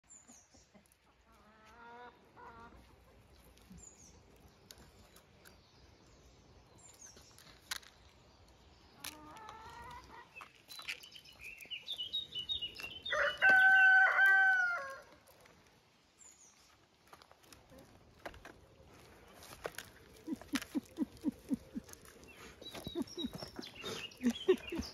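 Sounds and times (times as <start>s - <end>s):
rustling and ticking on gravel: 2.7s - 24.9s
rooster crowing: 13.1s - 15.1s.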